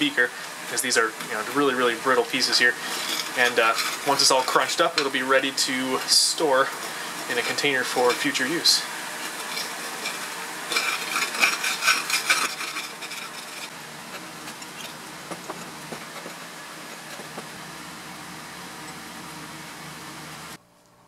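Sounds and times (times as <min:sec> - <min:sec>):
crunching scrape on glass pan: 0:09.3 - 0:15.0.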